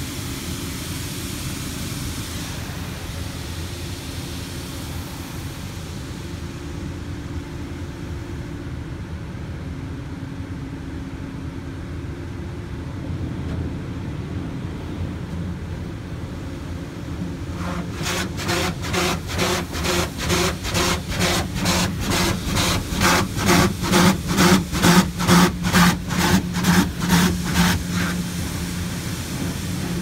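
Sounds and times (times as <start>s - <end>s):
car wash machinery humming: 0.0s - 30.0s
water spray rushing: 17.6s - 30.0s.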